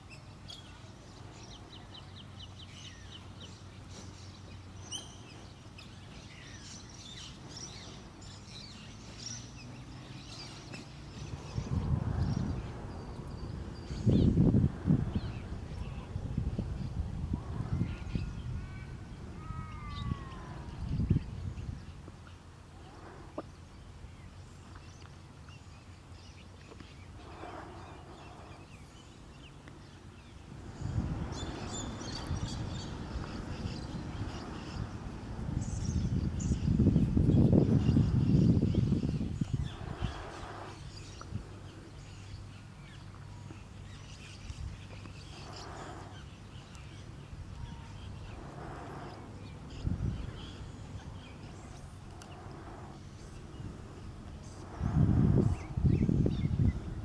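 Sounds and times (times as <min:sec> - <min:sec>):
bird harsh hissing calls: 0:27.0 - 0:29.2, 0:30.2 - 0:43.0, 0:45.2 - 0:57.0
soft noisy rasp: 0:45.0 - 0:56.8.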